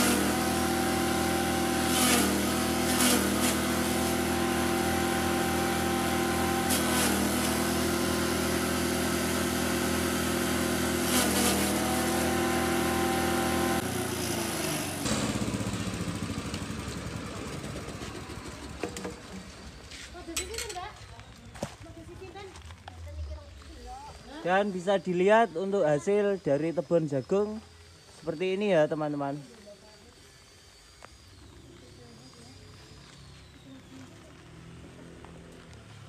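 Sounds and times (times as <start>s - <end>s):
engine running steadily: 0.0s - 19.9s
chopper chopping corn stalks: 0.0s - 26.4s.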